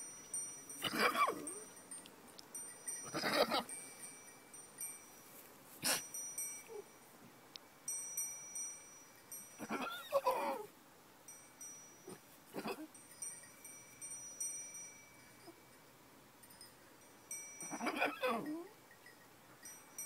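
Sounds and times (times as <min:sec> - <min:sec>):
faint high ringing tones: 0:00.0 - 0:20.0.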